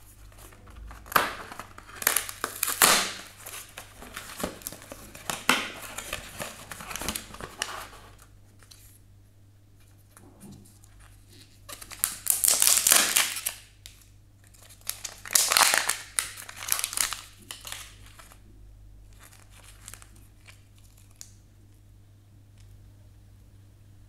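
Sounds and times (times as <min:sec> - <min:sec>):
wrapper crinkling as torn open: 0:00.2 - 0:08.9, 0:11.0 - 0:18.4, 0:19.1 - 0:21.4.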